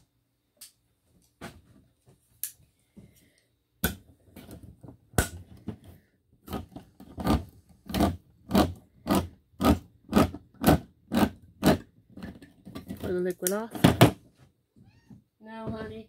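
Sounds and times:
can opener scraping a tin lid: 0:06.5 - 0:13.1.

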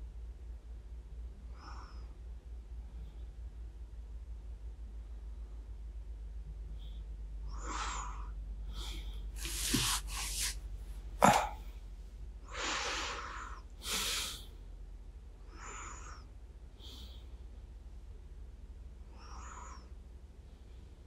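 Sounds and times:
sleepy breaths and sighs: 0:01.4 - 0:14.8, 0:15.4 - 0:17.7, 0:19.0 - 0:21.0
soft rustling: 0:09.3 - 0:11.2.

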